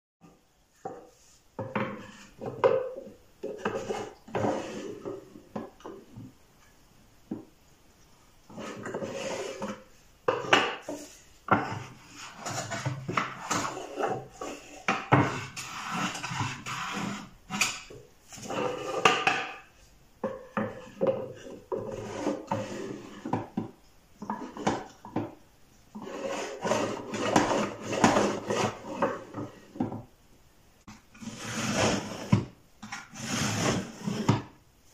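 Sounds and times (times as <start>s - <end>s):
hand plane shaving wood: 11.5s - 17.8s, 26.0s - 29.4s, 31.2s - 32.4s, 33.1s - 34.3s
drawer sliding into cabinet: 31.2s - 34.5s.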